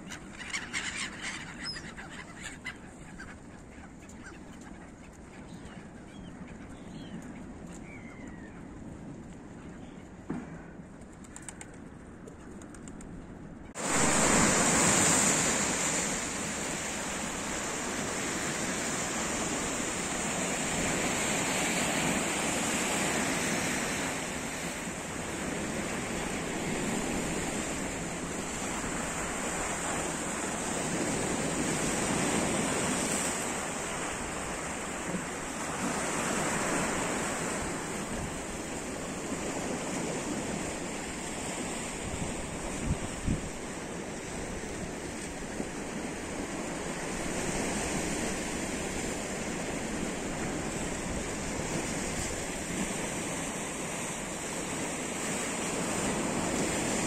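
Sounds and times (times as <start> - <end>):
gull calls: 0.0 - 7.2
sea surf rushing: 13.8 - 57.0.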